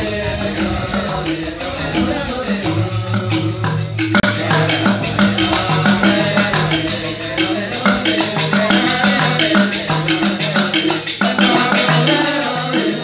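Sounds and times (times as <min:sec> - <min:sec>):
low pulsing bass line: 0:00.0 - 0:08.7
cymbals and bamboo percussion: 0:00.0 - 0:13.0.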